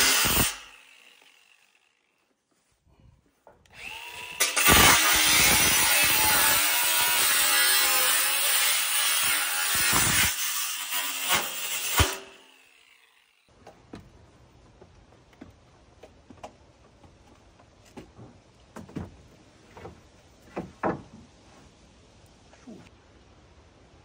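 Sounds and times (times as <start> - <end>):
angle grinder cutting steel: 0.0 - 2.0, 3.7 - 13.5
faint knocks and taps: 13.6 - 21.3.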